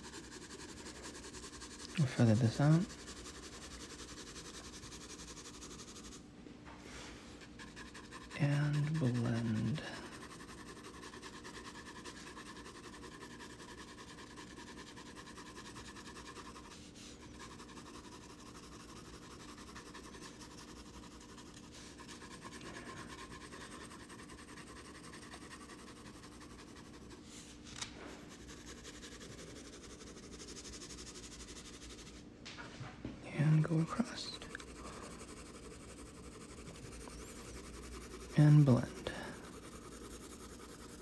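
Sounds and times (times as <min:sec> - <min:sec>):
pencil scratching on paper: 0:00.0 - 0:06.2, 0:07.1 - 0:32.3, 0:33.3 - 0:41.0.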